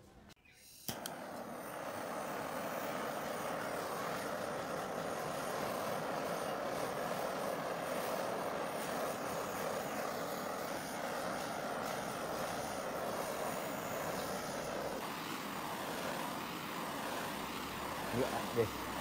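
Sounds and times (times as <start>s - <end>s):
butane torch flame hissing: 0.5s - 19.0s.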